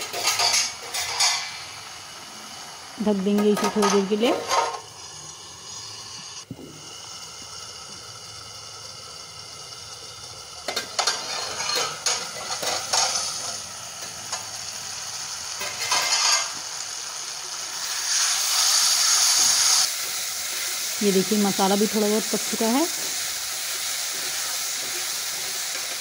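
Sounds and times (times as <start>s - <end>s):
masala sizzling in oil: 0.0s - 26.0s
metal spatula stirring: 11.0s - 13.2s
metal clinks and scrapes: 11.0s - 13.3s.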